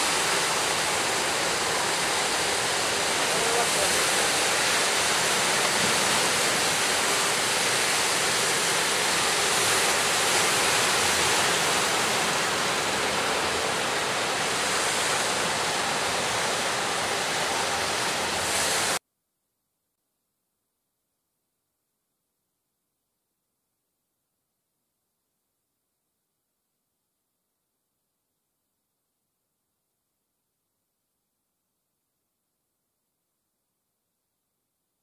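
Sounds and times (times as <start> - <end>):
sea waves and surf rushing: 0.0 - 19.0.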